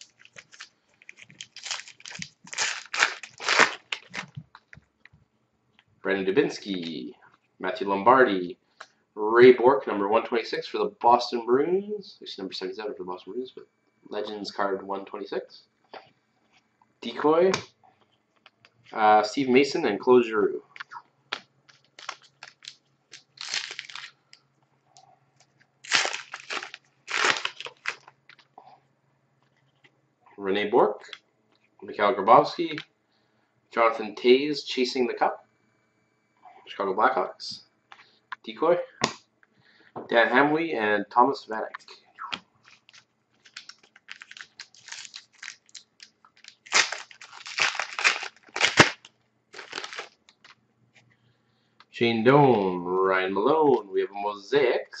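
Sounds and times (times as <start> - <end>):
wrapper crinkling and tearing: 0.0 - 4.7, 21.7 - 24.3, 25.8 - 28.4, 42.6 - 50.5.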